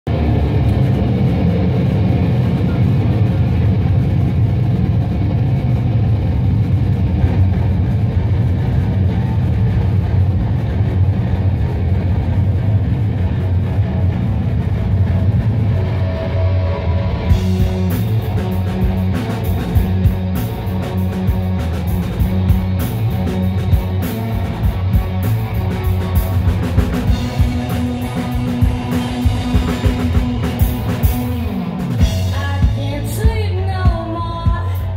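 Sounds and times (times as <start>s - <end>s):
rock band playing loud: 0.1s - 34.9s
cymbals and drums: 17.3s - 34.9s.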